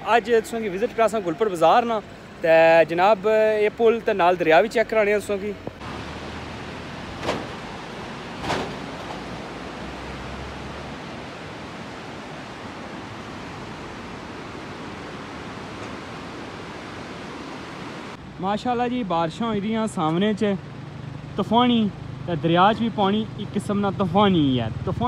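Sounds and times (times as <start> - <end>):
river rushing in flood: 0.0 - 18.4.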